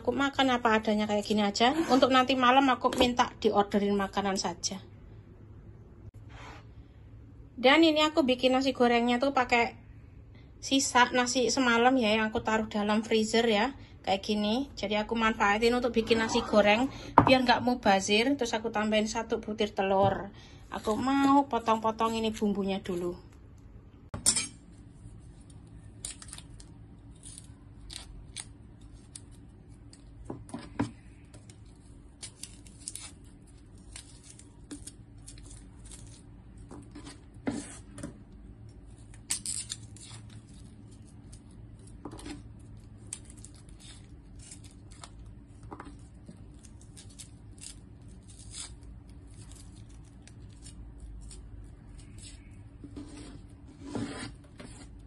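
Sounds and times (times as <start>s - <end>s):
knife peeling garlic skins: 25.2s - 38.0s, 38.6s - 55.0s.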